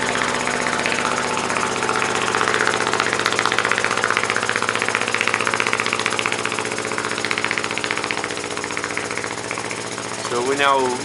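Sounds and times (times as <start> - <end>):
steady low hum: 0.0 - 11.0
steam engine exhaust beating: 0.0 - 11.0.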